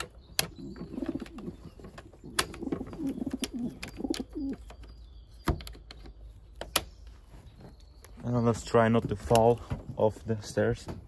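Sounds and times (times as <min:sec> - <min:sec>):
pigeons cooing: 0:00.0 - 0:04.9.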